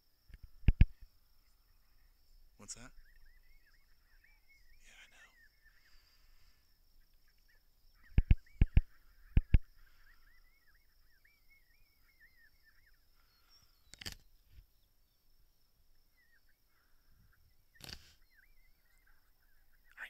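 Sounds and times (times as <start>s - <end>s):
faint bird chirping: 0.0s - 20.0s
sharp knocks from handling scope: 8.1s - 9.6s
single click: 13.9s - 14.2s, 17.8s - 18.2s.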